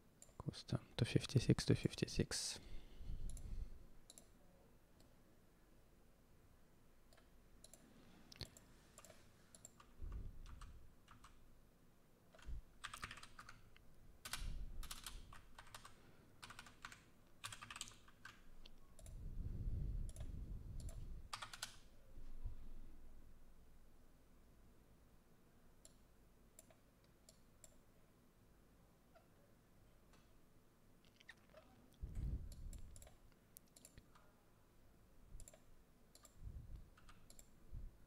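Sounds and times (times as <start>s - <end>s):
keyboard typing: 8.4s - 11.4s, 12.3s - 19.2s, 20.1s - 21.8s, 32.5s - 34.3s, 35.4s - 37.6s.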